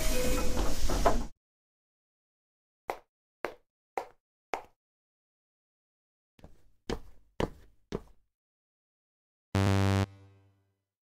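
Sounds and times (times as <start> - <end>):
light quick cartoon footsteps: 6.4 - 8.2.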